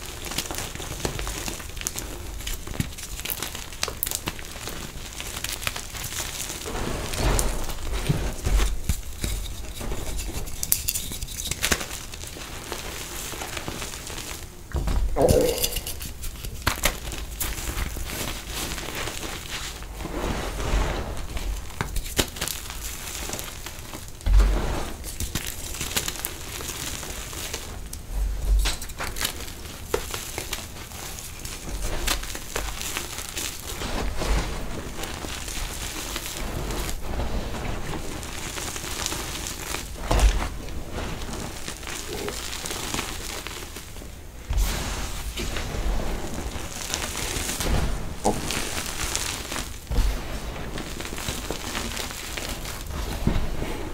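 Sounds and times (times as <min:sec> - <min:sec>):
hands crunching gravelly soil: 0:28.9 - 0:53.9.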